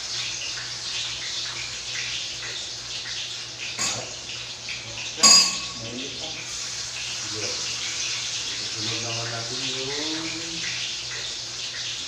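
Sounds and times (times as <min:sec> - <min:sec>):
tap water running into sink: 0:00.0 - 0:12.0
ringing metallic clang: 0:05.2 - 0:05.8.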